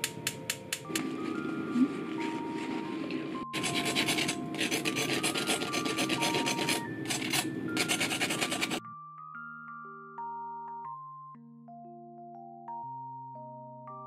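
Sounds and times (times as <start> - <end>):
knife scraping toast crust: 3.6 - 8.8.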